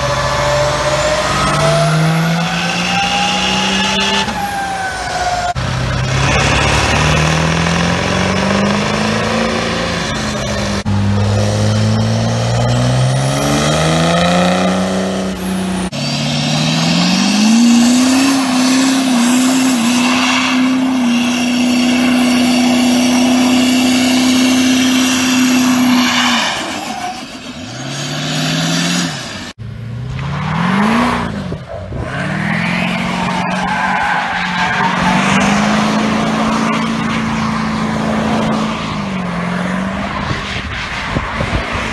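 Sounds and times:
diesel truck engines revving: 0.0s - 41.9s
tyre squeal: 9.8s - 29.0s.

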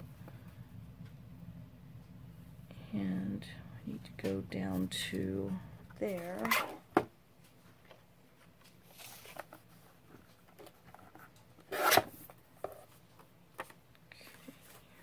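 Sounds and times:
paper rustling and sliding: 8.4s - 13.0s.

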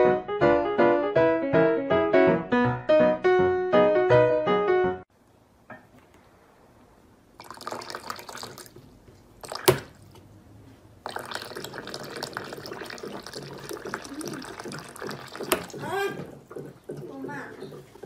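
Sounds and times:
water splashing into tray: 7.4s - 10.2s, 11.0s - 18.0s
water running: 7.4s - 10.3s, 11.0s - 18.0s.

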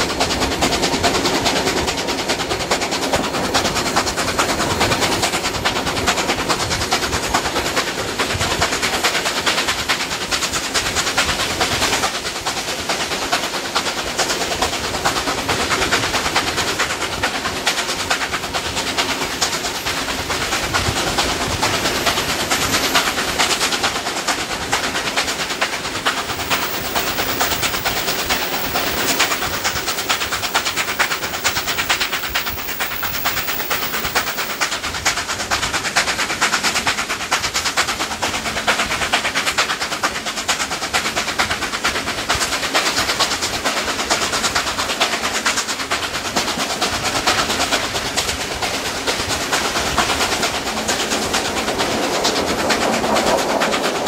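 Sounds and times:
wheels on rails: 0.0s - 40.8s, 41.5s - 54.0s
steam locomotive exhaust: 0.0s - 54.0s
wind: 0.0s - 54.0s.

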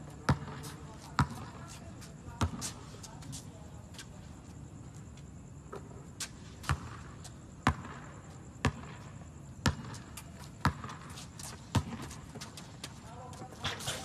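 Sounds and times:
basketball bouncing on hard court: 0.3s - 1.5s, 6.6s - 7.0s, 7.6s - 9.0s, 9.6s - 12.2s.

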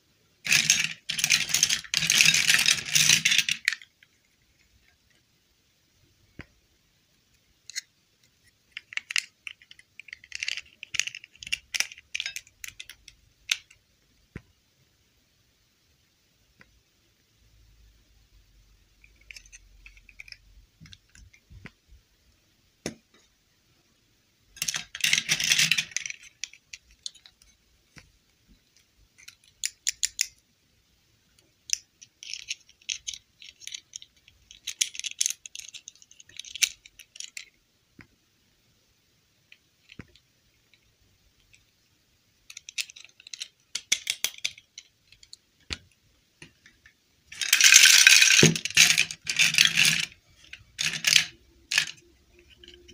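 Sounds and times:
plastic dolls clicking and rattling: 0.4s - 5.2s, 7.6s - 13.8s, 19.0s - 21.8s, 24.6s - 30.4s, 31.6s - 37.6s, 42.4s - 52.9s.

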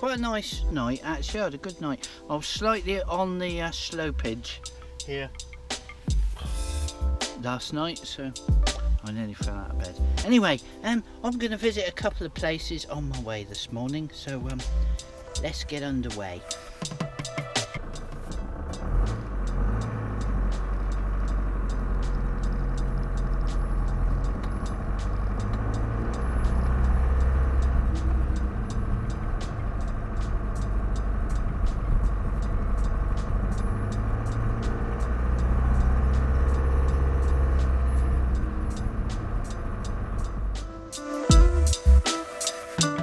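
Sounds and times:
van engine and road rumble: 0.0s - 42.1s.

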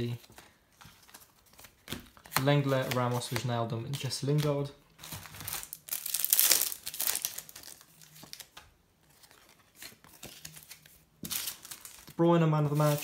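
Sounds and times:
cards rustling: 0.0s - 13.0s
wrapper tearing and crinkling: 5.0s - 8.6s, 9.7s - 13.0s.

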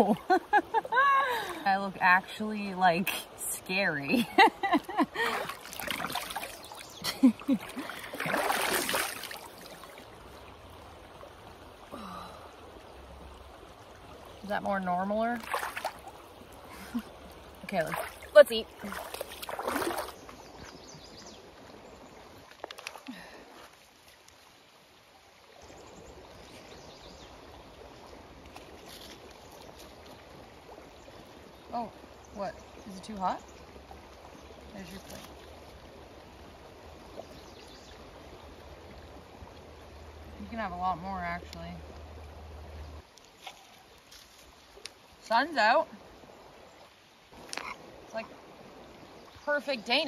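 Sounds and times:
river flowing over stones: 0.0s - 50.0s
stream trickling: 0.0s - 50.0s
hands splashing water: 5.2s - 6.9s, 7.6s - 9.9s, 15.4s - 16.2s, 17.8s - 20.2s.

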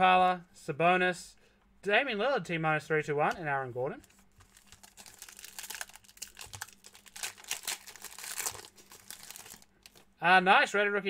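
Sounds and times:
wrapper crinkling and tearing: 4.3s - 10.1s.

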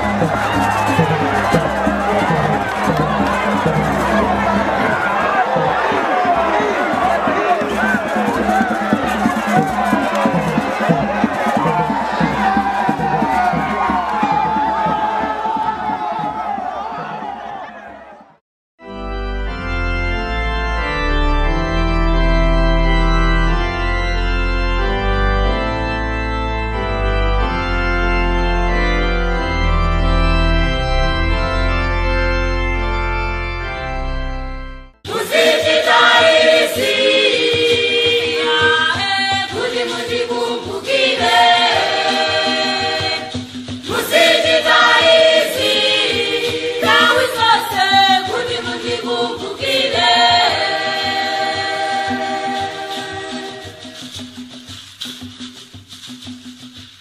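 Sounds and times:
organ chords: 0.0s - 17.6s, 18.8s - 38.6s
choir singing: 0.0s - 18.0s, 35.0s - 54.2s
percussion: 0.0s - 18.4s, 35.0s - 57.0s.

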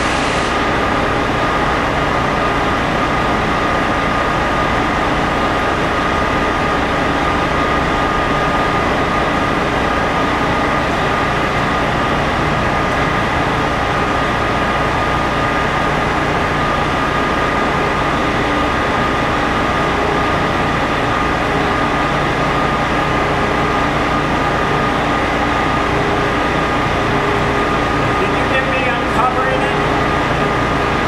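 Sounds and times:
high engine whine: 0.0s - 31.0s
truck diesel engine running: 0.0s - 31.0s.

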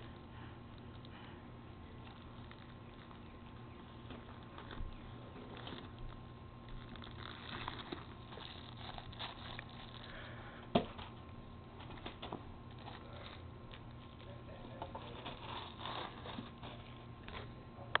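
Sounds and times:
cellophane and tissue paper crinkling: 2.0s - 10.3s, 11.9s - 17.1s.

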